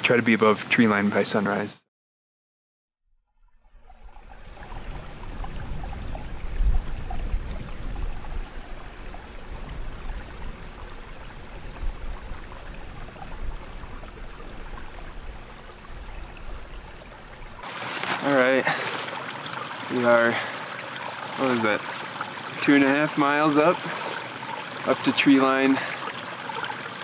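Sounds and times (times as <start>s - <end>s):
wind blowing across microphone: 3.9s - 17.6s.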